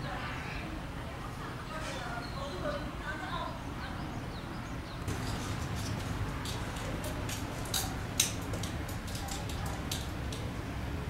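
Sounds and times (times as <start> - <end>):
sharp clicks and ticks: 6.4 - 10.5.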